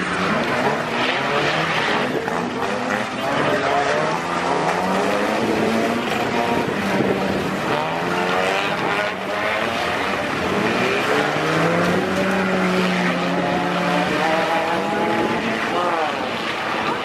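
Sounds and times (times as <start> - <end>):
race car engines revving: 0.0 - 17.0
wind noise: 5.0 - 17.0.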